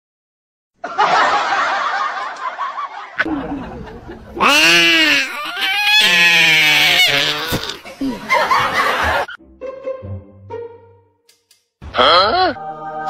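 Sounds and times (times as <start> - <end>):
wheezy snickering laughter: 7.0 - 9.4.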